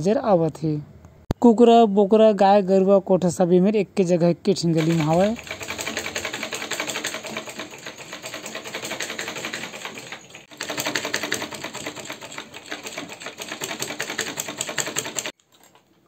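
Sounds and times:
sewing machine clatter: 4.8 - 15.9.

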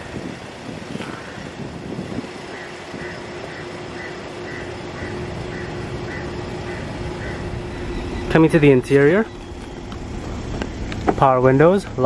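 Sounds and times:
low steady hum: 0.0 - 12.0
faint high beeps: 7.6 - 10.0.

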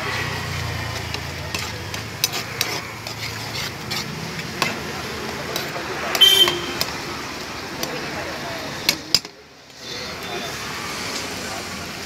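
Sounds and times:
noodles sizzling: 0.0 - 12.0
metal spoon scraping pan: 0.6 - 7.0.

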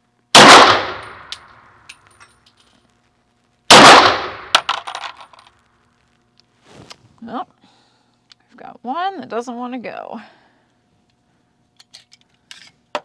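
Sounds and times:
pistol shot: 0.4 - 1.5, 3.7 - 4.7.

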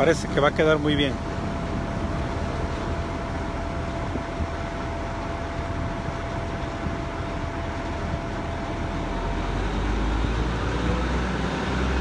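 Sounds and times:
dump truck engine rumbling: 0.0 - 12.0
road traffic: 4.7 - 12.0.

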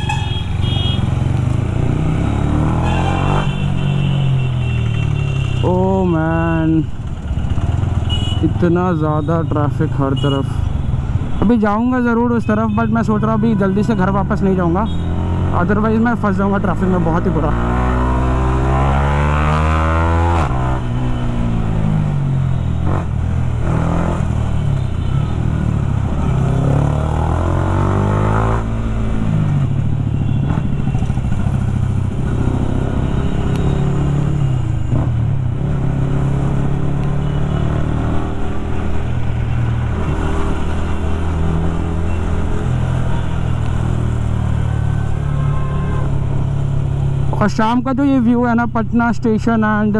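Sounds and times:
motorcycle engine revving: 1.0 - 4.0, 14.9 - 24.6, 25.4 - 39.1.

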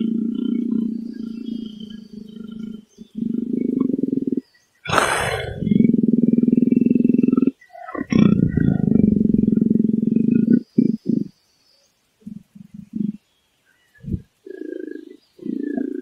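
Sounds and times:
leopard growling: 0.0 - 11.3, 14.1 - 16.0
leopard snarl: 0.0 - 11.3.

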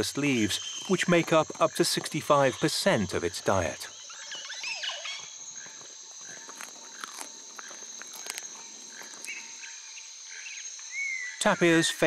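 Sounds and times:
bird chirps: 0.0 - 1.8, 3.8 - 6.6, 9.0 - 12.0
high insect drone: 0.0 - 12.0
animal crunching leaves: 6.3 - 9.4.

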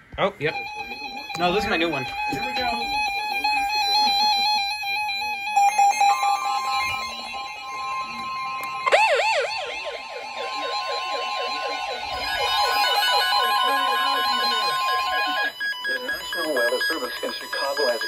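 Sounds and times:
steady alert tones: 0.4 - 18.0
warbling electronic siren: 0.4 - 18.0.

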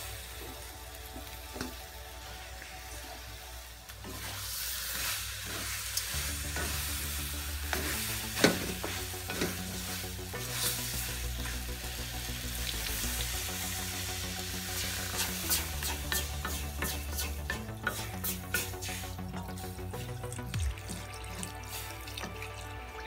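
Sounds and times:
food sizzling in a wok: 0.0 - 22.2
wooden spatula scraping a pan: 4.0 - 7.0.

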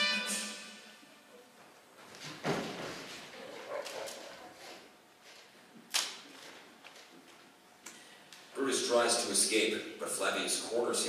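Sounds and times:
music: 0.0 - 1.1.

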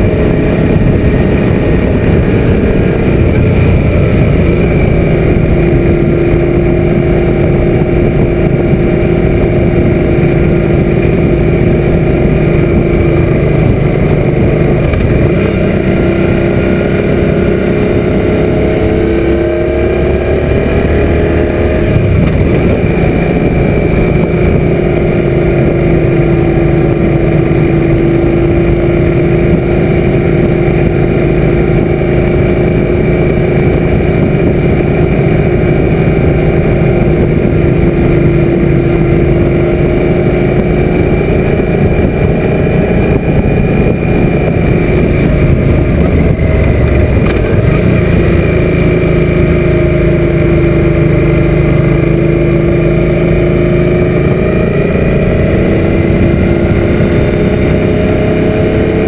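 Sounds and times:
motorcycle engine running: 0.0 - 59.0
wind rush: 0.0 - 59.0.

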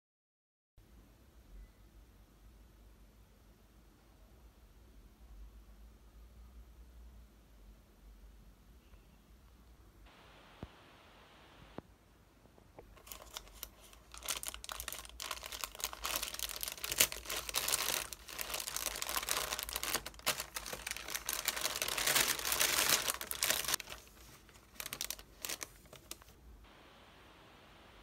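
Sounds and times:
plastic bag crinkling and tearing: 12.9 - 26.4.

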